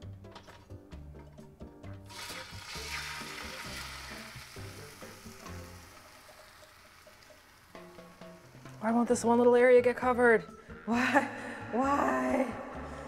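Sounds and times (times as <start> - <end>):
egg sizzling in hot pan: 2.1 - 9.3.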